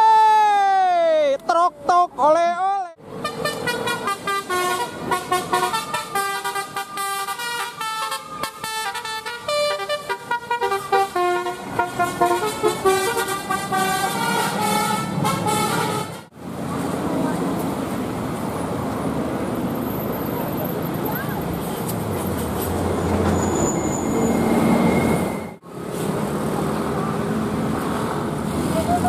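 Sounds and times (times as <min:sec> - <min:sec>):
low engine and traffic hum: 0:01.2 - 0:29.0
musical air horn melody: 0:03.2 - 0:16.3.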